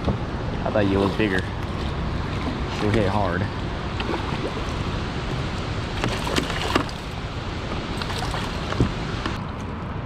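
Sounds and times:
churning water rushing: 0.0 - 9.6
fish splashing at surface: 6.0 - 7.2, 8.0 - 8.8.

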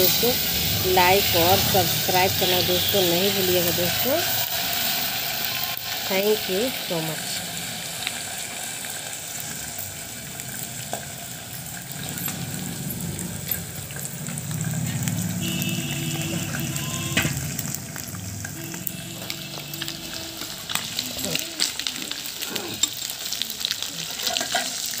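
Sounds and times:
fish sizzling in hot oil: 0.0 - 25.0
oil pops and crackles: 10.4 - 25.0.

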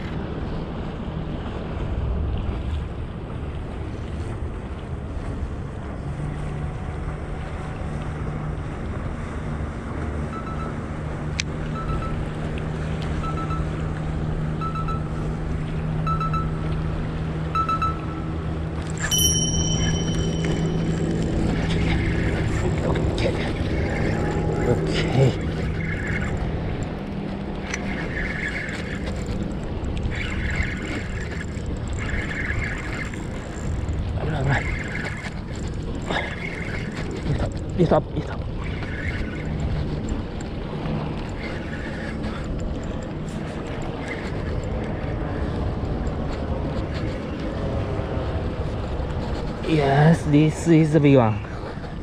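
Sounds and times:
motorboat engines droning: 0.0 - 52.0
wind buffeting microphone: 0.0 - 52.0
spinning reel whirring: 17.4 - 52.0.

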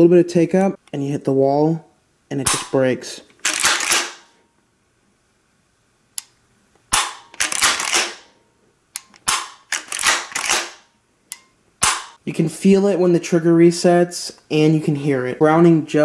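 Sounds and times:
metallic clatter of shotgun action: 2.5 - 4.4, 6.9 - 8.4, 9.0 - 12.2.

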